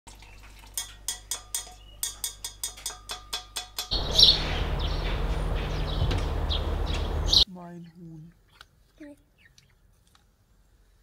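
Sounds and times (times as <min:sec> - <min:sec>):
outdoor background noise: 0:00.1 - 0:11.0
birds chirping: 0:03.9 - 0:08.6.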